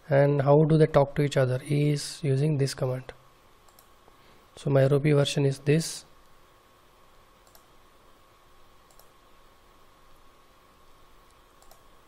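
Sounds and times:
faint steady hum: 0.0s - 12.0s
computer mouse clicks: 3.7s - 3.9s, 7.4s - 7.7s, 8.8s - 9.2s, 11.2s - 11.9s.

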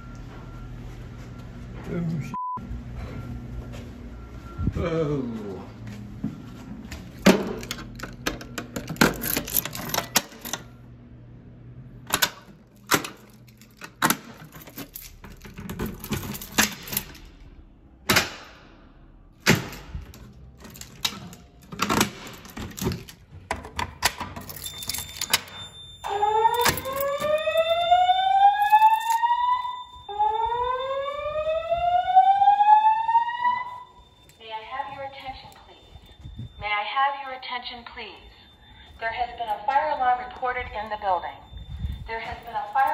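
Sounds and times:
keys jingling: 7.5s - 10.7s, 12.1s - 17.4s, 19.7s - 29.9s, 41.7s - 42.9s
fire alarm whoop tone: 25.0s - 42.9s
steady high beep: 33.4s - 42.9s.

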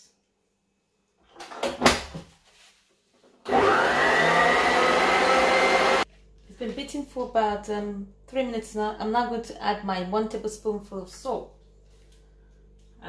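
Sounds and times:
stand mixer motor whining: 3.5s - 6.0s.

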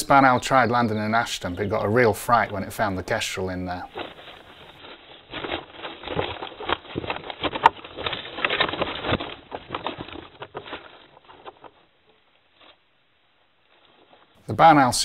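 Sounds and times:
birds wing-flapping and scuffling: 0.2s - 12.9s
scrapes and knocks on wood: 3.8s - 12.8s.

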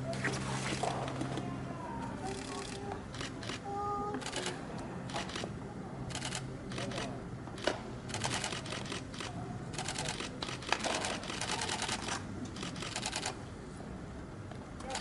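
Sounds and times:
camera shutters clicking rapidly: 6.1s - 13.4s.

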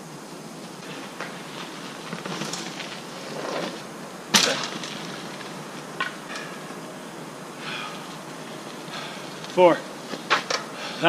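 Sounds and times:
mountain bike rolling over dirt: 0.1s - 11.0s
bike landing a jump clatter: 1.2s - 6.6s.

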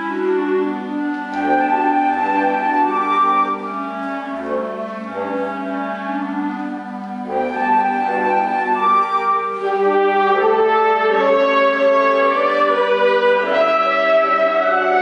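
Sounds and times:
wind ensemble playing chords: 0.0s - 15.0s.

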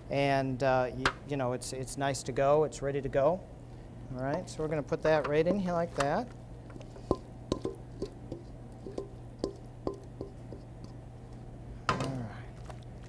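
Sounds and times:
steady low hum: 0.0s - 13.0s
metal bowl ringing taps: 7.1s - 10.6s.

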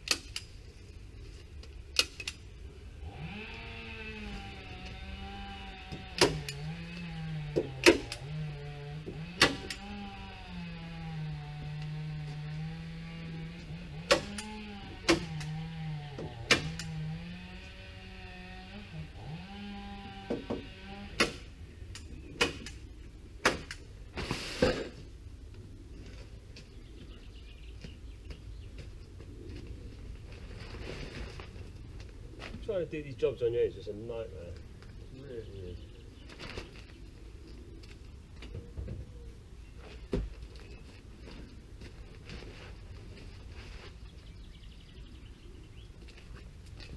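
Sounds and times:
motor hum: 2.4s - 23.9s.

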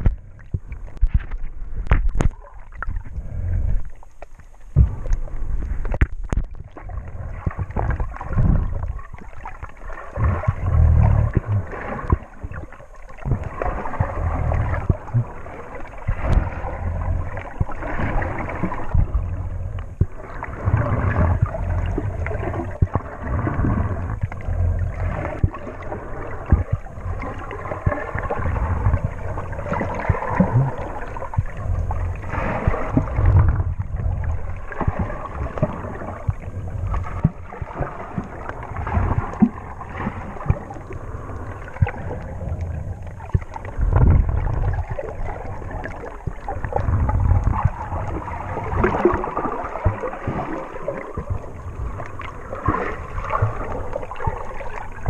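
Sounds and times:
underwater sloshing and gurgling: 0.0s - 55.0s.

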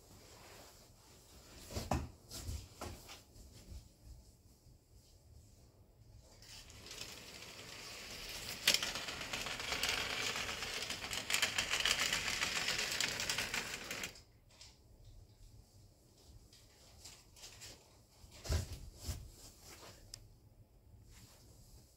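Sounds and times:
model train clicking rattle: 6.7s - 14.2s.

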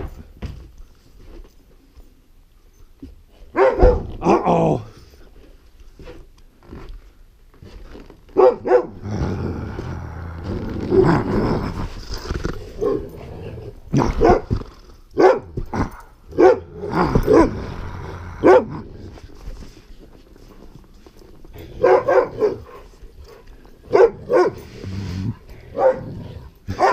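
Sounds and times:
dog barking: 3.5s - 4.4s, 8.4s - 9.0s, 14.2s - 14.5s, 15.2s - 15.6s, 16.3s - 17.6s, 18.4s - 18.8s, 21.8s - 22.8s, 23.9s - 24.6s, 25.7s - 26.9s
dog growling: 8.9s - 19.4s, 24.6s - 26.8s.

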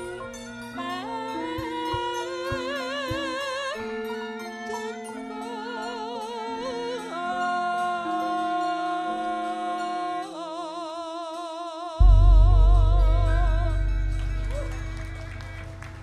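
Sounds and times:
woman singing with vibrato: 0.0s - 15.6s
gamelan sustained notes: 12.0s - 16.0s.

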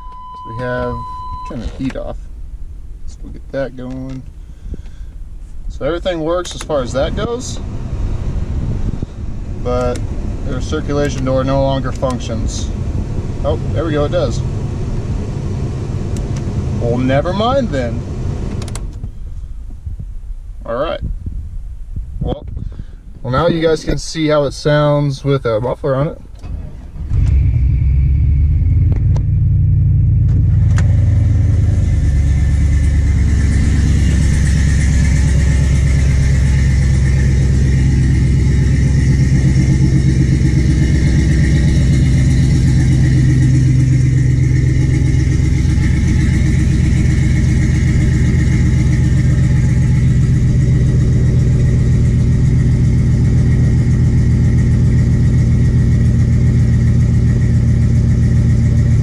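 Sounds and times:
pickup truck engine idling: 6.6s - 18.5s, 26.5s - 59.0s.

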